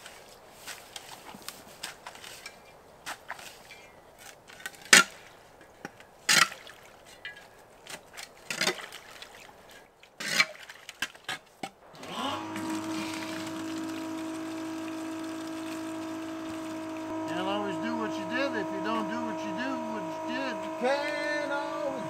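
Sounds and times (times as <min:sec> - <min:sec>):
tool scraping wet muck: 0:00.0 - 0:22.0.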